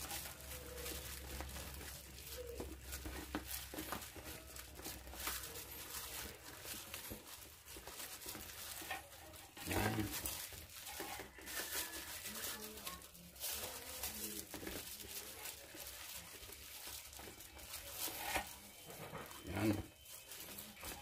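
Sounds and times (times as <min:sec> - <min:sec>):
batter squelching: 0:00.0 - 0:21.0
utensil scraping a metal bowl: 0:17.8 - 0:20.1.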